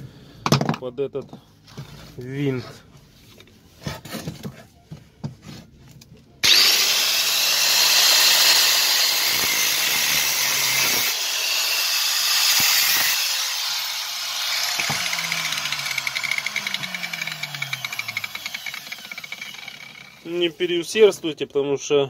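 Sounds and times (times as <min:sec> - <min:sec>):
grinder spinning down with whine: 0:06.4 - 0:20.3
angle grinder cutting steel: 0:06.4 - 0:20.6.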